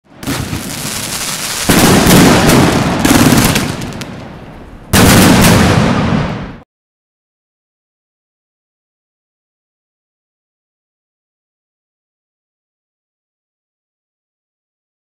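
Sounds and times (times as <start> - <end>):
fireworks cracking and banging: 0.1 - 6.6.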